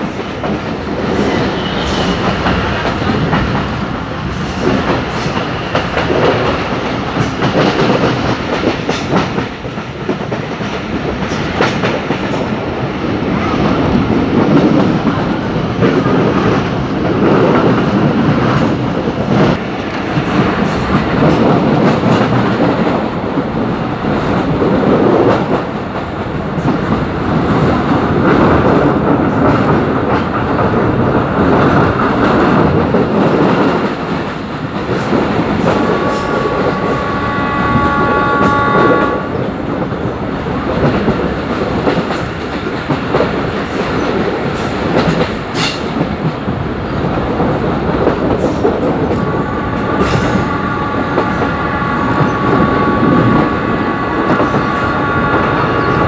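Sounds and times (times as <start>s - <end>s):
train wheels rumbling on rails: 0.0s - 56.0s
wind: 0.0s - 56.0s
locomotive horn chord: 35.9s - 39.4s, 49.2s - 56.0s.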